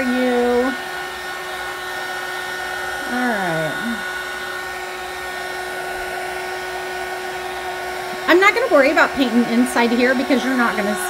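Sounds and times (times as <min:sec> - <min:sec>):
heat gun blowing hiss: 0:00.0 - 0:11.0
voice humming: 0:03.0 - 0:04.1.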